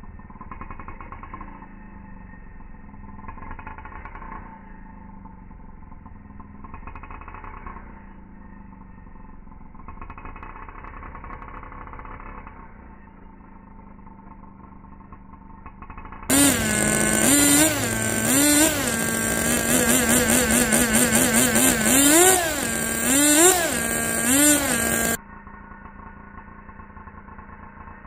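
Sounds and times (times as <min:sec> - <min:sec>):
rc car engine revving: 0:15.9 - 0:25.2.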